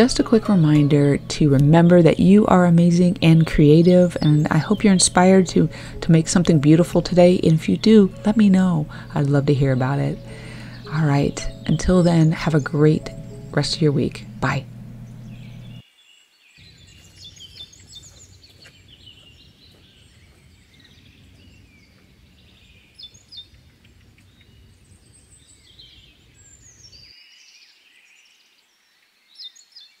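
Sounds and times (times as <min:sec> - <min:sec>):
low outdoor rumble: 0:00.0 - 0:15.8
small birds chirping and trilling: 0:01.8 - 0:30.0.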